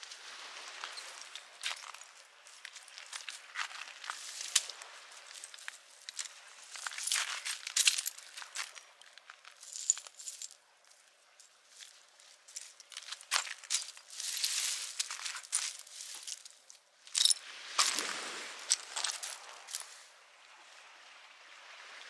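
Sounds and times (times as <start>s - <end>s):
camping gear clicks and clinks: 0.8s - 10.6s, 12.5s - 18.0s, 18.7s - 20.0s
scraping rustle: 12.6s - 16.6s.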